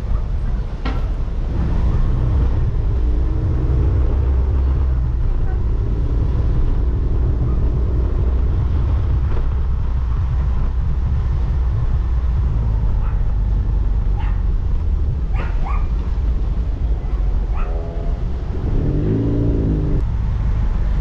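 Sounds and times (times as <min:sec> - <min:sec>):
wind rumble: 0:00.0 - 0:21.0
motorcycle engine running: 0:01.9 - 0:20.3
dog barking: 0:13.0 - 0:13.4, 0:14.1 - 0:14.4, 0:15.3 - 0:16.0, 0:17.0 - 0:18.0.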